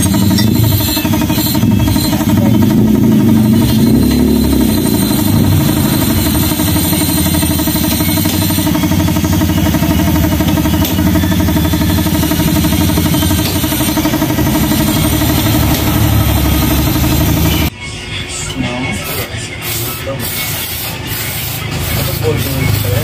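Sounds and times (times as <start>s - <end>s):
motor running with fast pulse: 0.0s - 17.7s.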